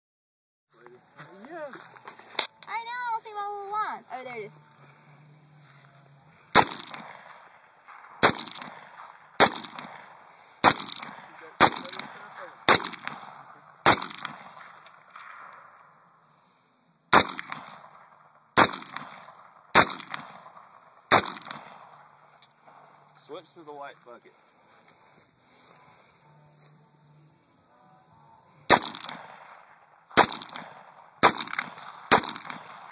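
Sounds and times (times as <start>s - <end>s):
rifle shots echoing: 6.5s - 16.1s, 17.1s - 23.2s, 28.7s - 32.9s.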